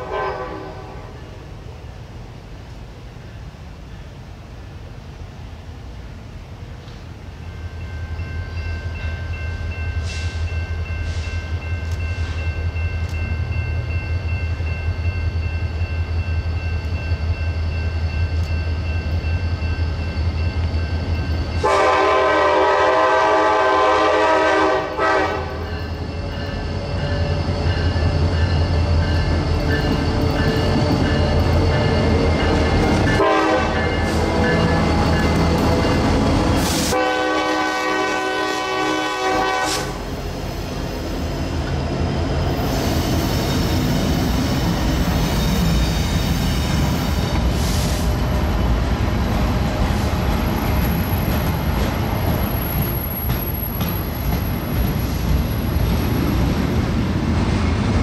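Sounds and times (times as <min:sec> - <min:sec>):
train horn blast: 0:00.0 - 0:01.2, 0:21.6 - 0:25.7, 0:33.1 - 0:34.8, 0:36.6 - 0:40.2
locomotive engine rumble: 0:39.9 - 0:58.0.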